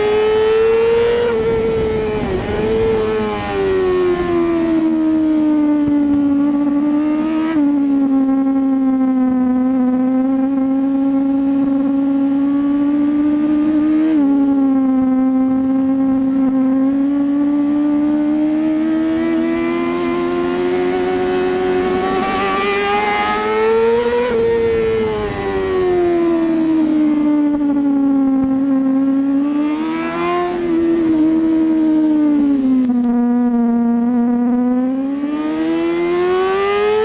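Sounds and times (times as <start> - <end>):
wind rush: 0.0 - 5.0, 19.6 - 27.8
motorcycle engine at speed: 0.0 - 37.0.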